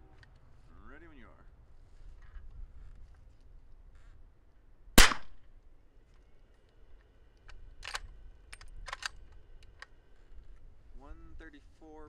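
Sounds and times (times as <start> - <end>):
suppressed rifle shot: 5.0 - 5.4
rifle bolt clicking: 7.4 - 9.9.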